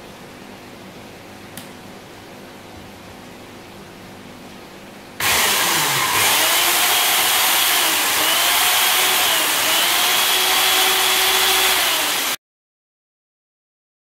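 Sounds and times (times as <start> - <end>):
electric chainsaw whirring: 5.2 - 12.4.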